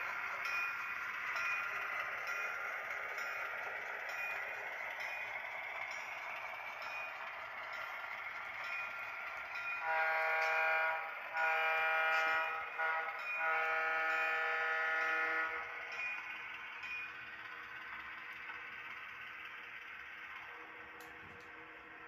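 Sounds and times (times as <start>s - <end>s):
air horn blasts: 9.8s - 15.2s.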